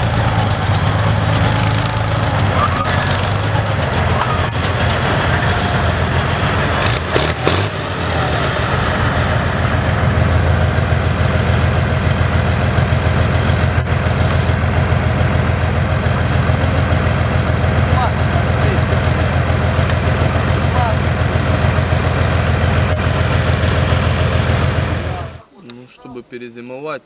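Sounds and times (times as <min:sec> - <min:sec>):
diesel engine low drone: 0:00.0 - 0:25.5.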